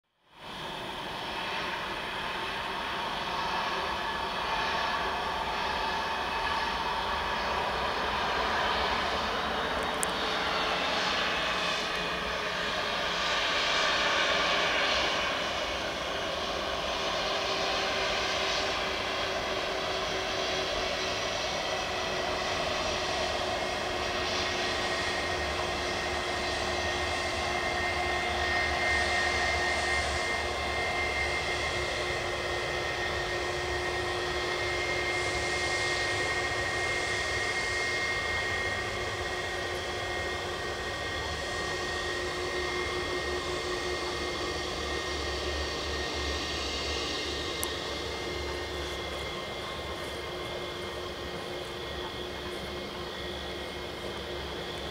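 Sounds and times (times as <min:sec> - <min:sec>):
jet engines whining: 0:00.4 - 0:54.9.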